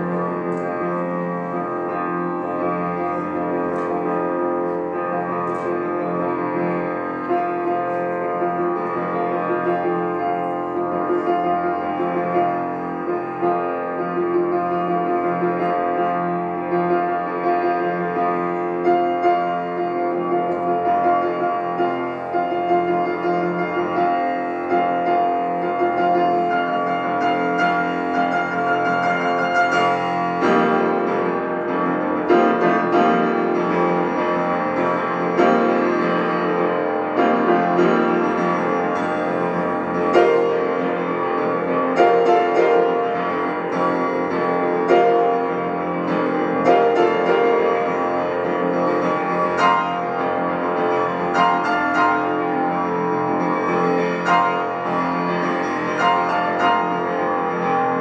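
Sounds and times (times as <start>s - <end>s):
grand piano playing: 0.0s - 58.0s.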